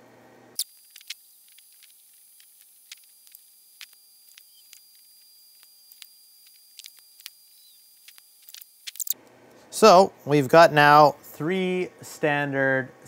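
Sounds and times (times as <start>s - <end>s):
faint steady hum: 0.0s - 13.0s
small clicks of wire connectors: 0.6s - 9.2s.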